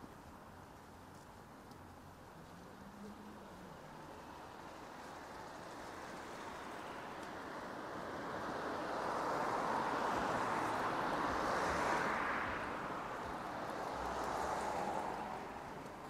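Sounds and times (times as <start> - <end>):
car passing with tyre noise: 1.9 - 16.0.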